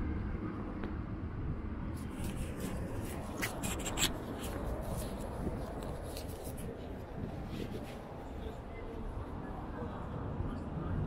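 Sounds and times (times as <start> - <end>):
low street rumble: 0.0 - 11.0
scratchy ticks and rustles: 2.0 - 8.1.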